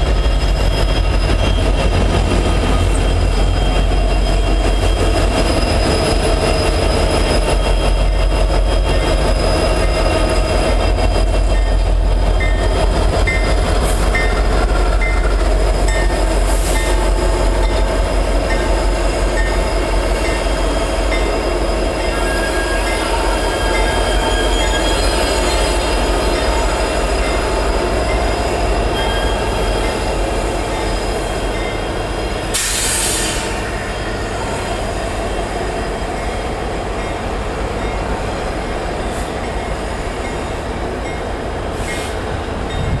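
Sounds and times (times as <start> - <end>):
wheels squealing on rail: 0.0 - 40.7, 41.7 - 43.0
diesel locomotive engines rumbling: 0.0 - 43.0
brief hiss: 32.6 - 33.6.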